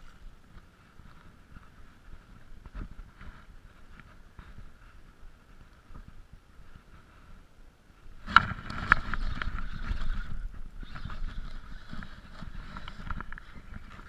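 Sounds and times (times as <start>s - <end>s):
sleeve rubbing against camera: 8.2s - 14.0s.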